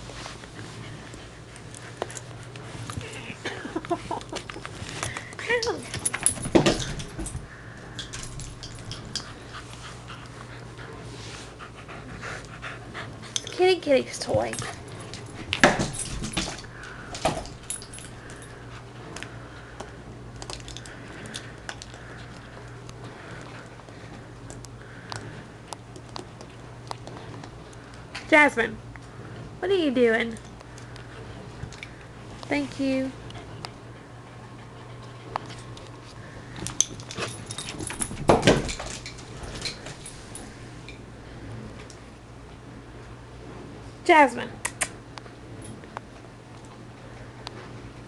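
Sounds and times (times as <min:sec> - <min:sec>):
light clicks and jingling: 0:01.6 - 0:09.6, 0:13.3 - 0:23.7, 0:36.5 - 0:41.0
dull thump and rattle: 0:37.2 - 0:40.0.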